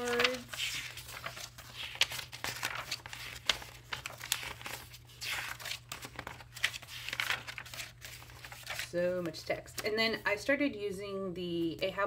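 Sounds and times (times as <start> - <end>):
paper flicks: 0.0 - 8.9
notebook pages rustling: 0.0 - 9.8.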